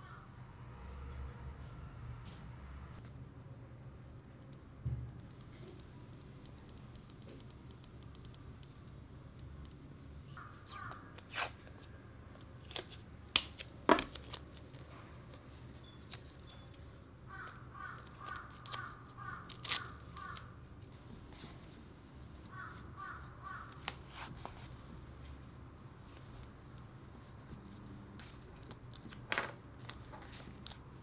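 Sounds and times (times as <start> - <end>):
tape ripping and crackling: 19.5 - 20.5.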